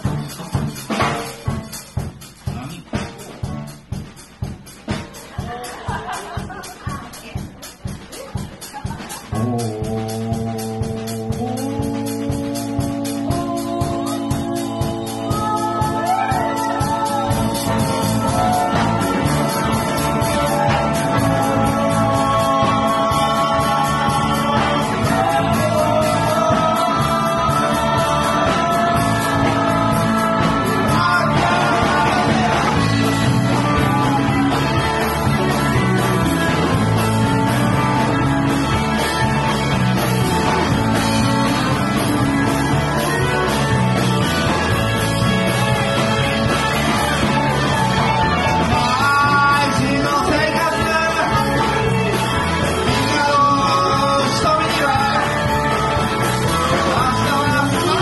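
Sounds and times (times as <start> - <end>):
drums: 0.0 - 58.0
electric guitars: 4.9 - 58.0
person singing: 8.1 - 38.5, 45.5 - 58.0.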